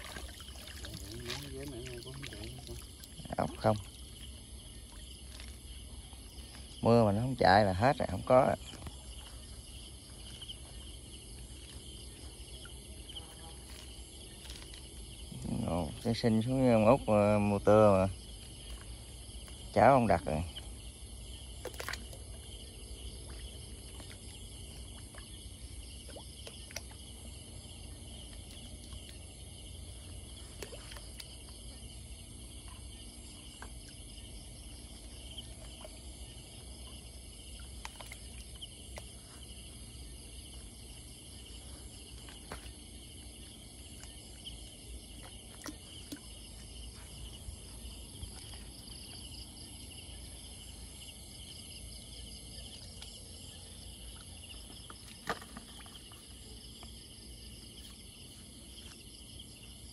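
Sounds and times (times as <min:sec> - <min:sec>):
small water splashes: 0:00.0 - 0:07.3, 0:08.2 - 0:59.9
crickets and insects trilling: 0:00.0 - 0:59.9.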